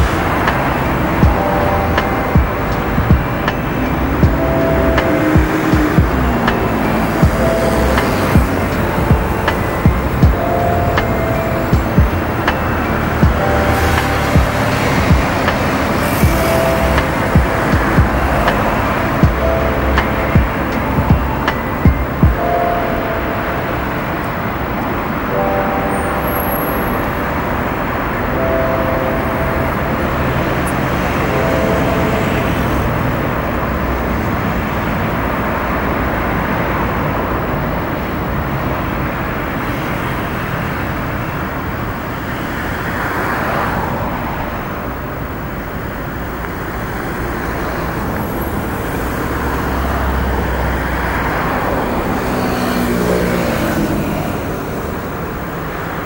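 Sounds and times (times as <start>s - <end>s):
road traffic noise: 0.0s - 56.0s.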